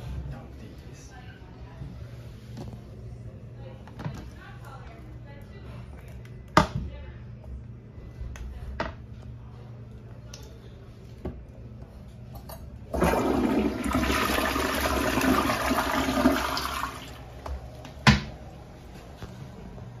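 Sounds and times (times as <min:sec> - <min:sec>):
toilet flushing: 0:12.9 - 0:17.4.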